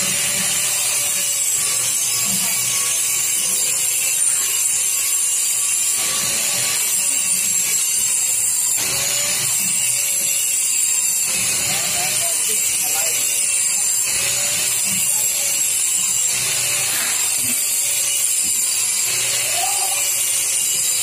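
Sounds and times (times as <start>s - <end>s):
faint hum of shop machinery: 0.0s - 21.0s
power tool hissing: 5.5s - 21.0s.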